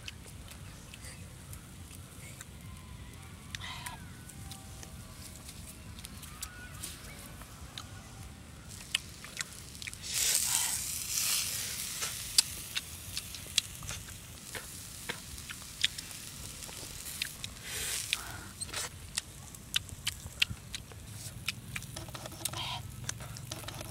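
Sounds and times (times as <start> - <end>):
food sizzling on hot stone: 8.7 - 22.9
sharp clicks and crackles: 12.0 - 23.9.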